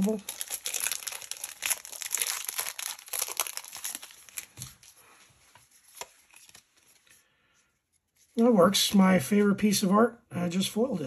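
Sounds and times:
plastic packaging crinkling and tearing: 0.0s - 5.0s, 5.6s - 7.1s.

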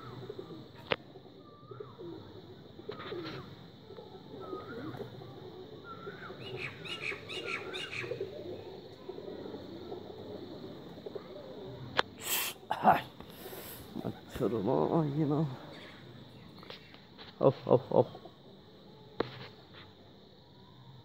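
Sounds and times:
pigeons cooing: 0.0s - 19.4s
bird chirps: 5.8s - 9.2s.

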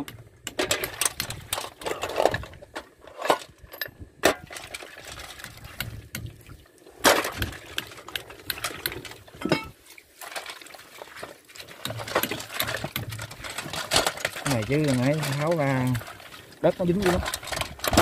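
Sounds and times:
liquid sloshing: 4.3s - 18.0s.

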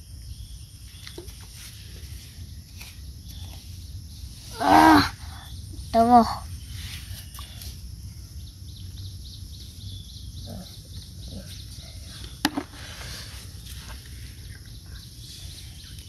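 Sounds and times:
faint high chirping: 0.0s - 12.4s
shell dropped into plastic bucket: 12.4s - 12.8s.

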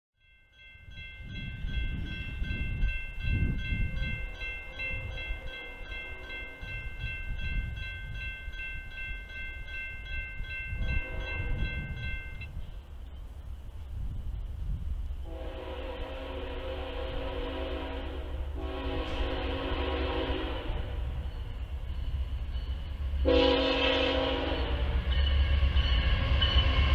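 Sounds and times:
crossing bell dinging: 0.2s - 12.6s, 21.0s - 26.9s.

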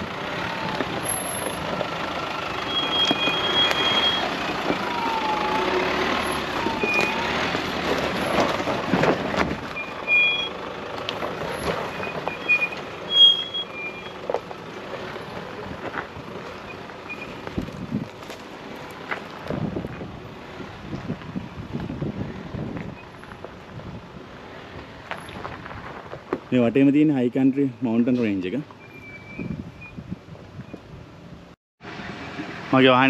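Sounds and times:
tyres rumbling over rough ground: 0.0s - 33.0s
squeak changing pitch: 12.0s - 14.2s.

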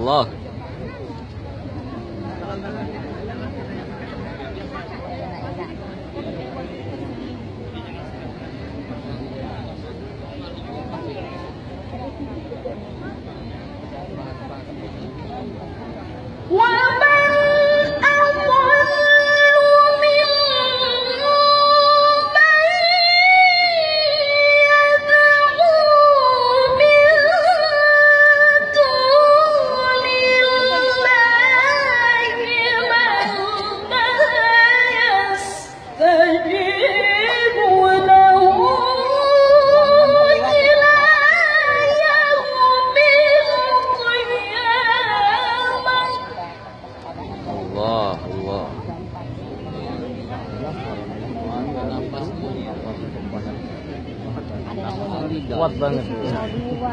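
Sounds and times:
woman reciting melodically: 16.5s - 46.7s.

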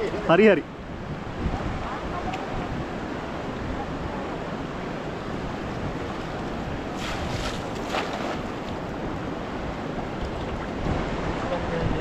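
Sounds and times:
wind on microphone: 0.0s - 12.0s
water splashes: 1.5s - 12.0s
water sloshing: 5.9s - 9.2s.

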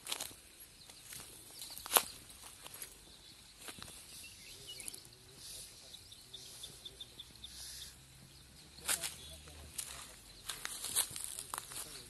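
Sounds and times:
faint distant voices: 0.8s - 12.0s
light scuffs: 8.8s - 12.0s.

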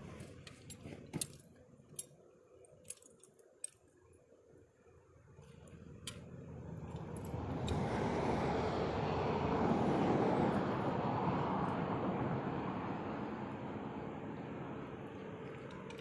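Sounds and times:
passing vehicle rushing: 6.6s - 15.4s
sharp clicks of trap wire: 6.9s - 7.9s.

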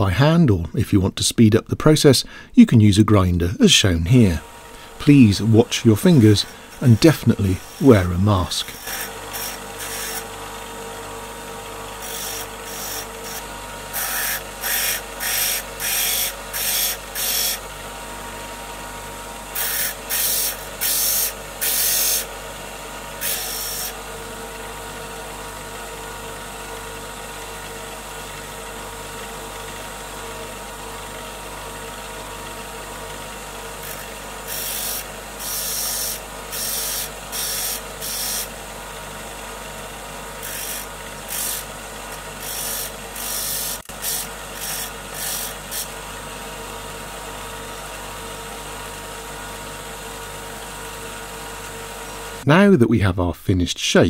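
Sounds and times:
bench grinder motor humming: 4.2s - 50.0s
harsh grinding hiss: 33.8s - 38.5s, 42.4s - 45.9s.

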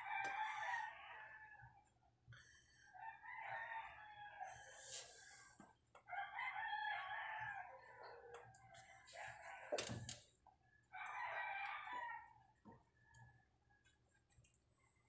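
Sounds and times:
faint rooster crowing: 0.0s - 2.0s, 2.9s - 14.0s.

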